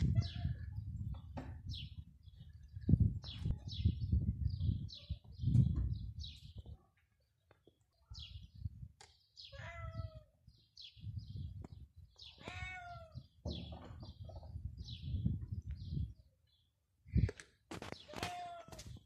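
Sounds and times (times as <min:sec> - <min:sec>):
small birds chirping: 0:00.1 - 0:19.0
cat meowing: 0:09.5 - 0:10.3, 0:12.4 - 0:13.2.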